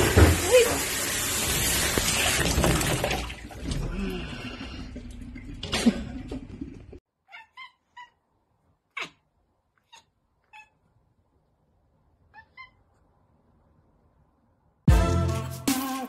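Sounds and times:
kitten chirping meows: 7.2 - 8.2, 12.3 - 12.9.

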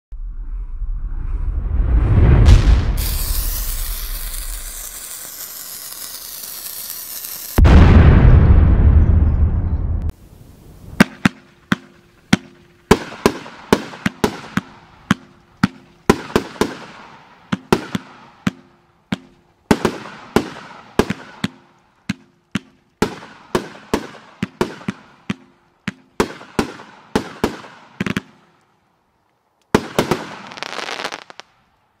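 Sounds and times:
explosion rumble: 0.1 - 4.7, 7.6 - 10.2
fireworks sharp cracks: 2.5 - 8.3, 10.9 - 28.6, 29.7 - 31.6
dense crackling hiss: 2.5 - 8.5, 10.1 - 32.0.

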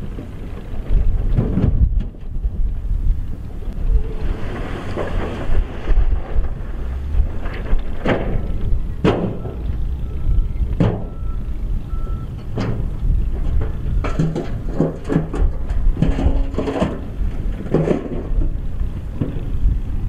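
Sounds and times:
knocks and clatters: 0.0 - 3.5, 4.4 - 9.9, 10.6 - 11.2, 12.4 - 19.6
diesel engine rumbling: 0.0 - 20.0
hydraulic hoist tipping truck bed: 7.3 - 18.6.

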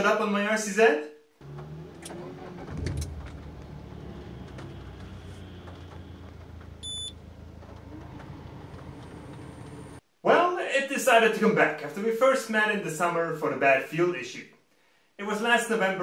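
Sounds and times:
car engine starting and idling: 1.4 - 10.0
dashboard warning chime: 6.8 - 7.3.

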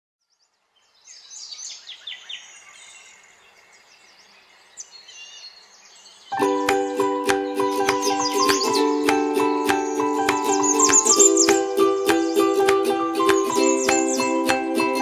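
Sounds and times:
songbirds chirping: 0.2 - 15.0
music with plucked notes: 6.4 - 15.0.

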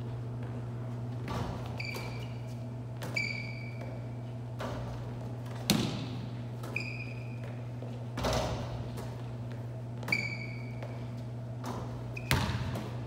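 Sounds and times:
steady low hum: 0.0 - 13.0
sneaker squeaks: 0.4 - 13.0
basketball bouncing on hardwood: 5.7 - 6.1, 11.7 - 13.0.

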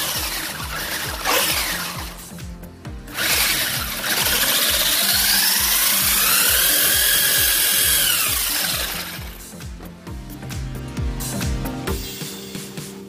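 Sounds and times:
electric motor whine: 0.0 - 9.6
background music: 0.0 - 13.0.

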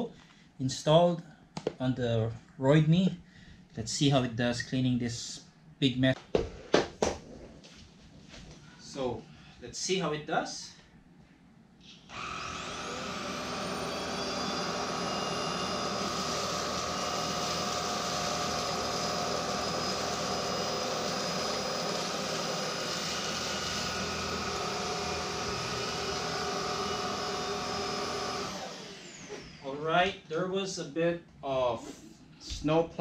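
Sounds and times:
vacuum cleaner motor whine: 12.1 - 30.0.

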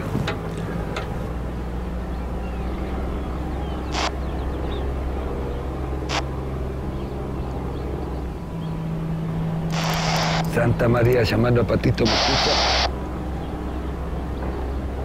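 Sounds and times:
low motor hum: 0.0 - 15.0
radio static bursts: 3.9 - 4.2, 6.1 - 6.3, 9.7 - 10.8, 11.8 - 12.9.

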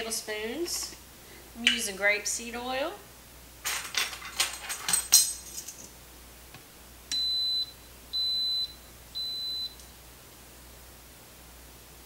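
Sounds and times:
pressure cooker beeping: 7.1 - 9.8.

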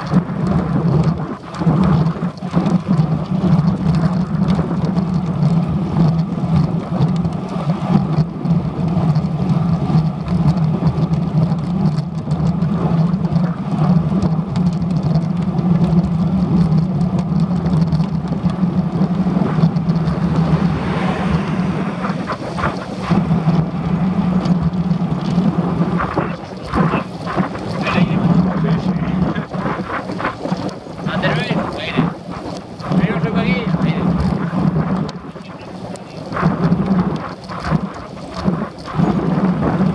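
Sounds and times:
wind buffeting microphone: 0.0 - 39.9
low hum: 8.0 - 39.9
vehicle passing: 19.1 - 25.1.

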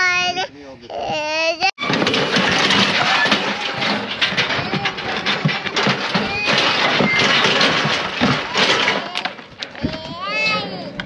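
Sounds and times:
hooves: 1.8 - 11.0
metal knocks and clanks: 1.8 - 11.0.

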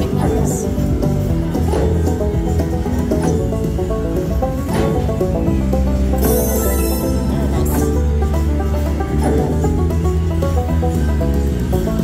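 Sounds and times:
slot machine bonus music: 6.2 - 8.0.

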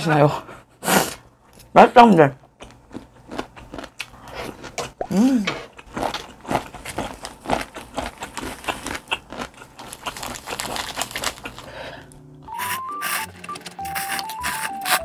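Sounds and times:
light background music: 12.2 - 15.0
utensils scraping plastic container: 12.5 - 15.0.

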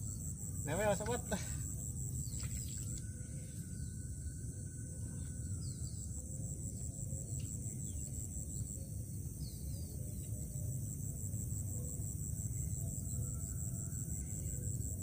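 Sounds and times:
faint bird chirps: 0.0 - 10.8.

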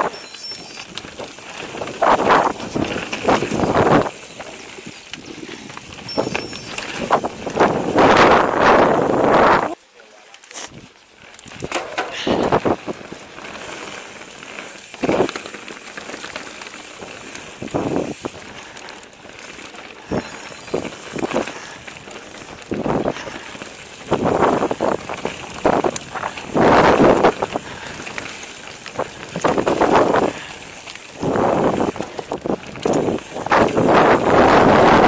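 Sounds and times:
bike rattling over bumps: 0.0 - 9.8, 10.8 - 35.0
tyres crunching on gravel: 0.1 - 8.1, 11.1 - 34.4.

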